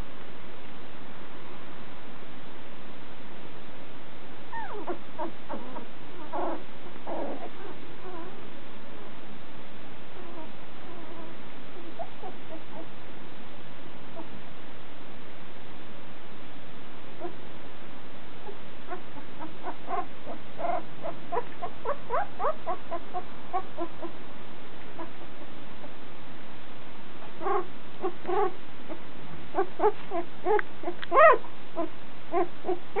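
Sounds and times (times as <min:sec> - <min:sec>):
puppy squeaking and whimpering: 0:04.5 - 0:08.4, 0:10.2 - 0:12.9, 0:17.2 - 0:17.4, 0:18.4 - 0:24.2, 0:25.0 - 0:25.3, 0:27.2 - 0:33.0.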